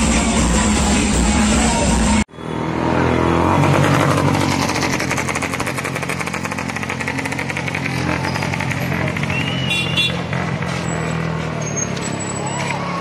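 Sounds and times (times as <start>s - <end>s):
loud music with steady beat: 0.0s - 2.2s
motorcycle engine revving: 0.0s - 12.8s.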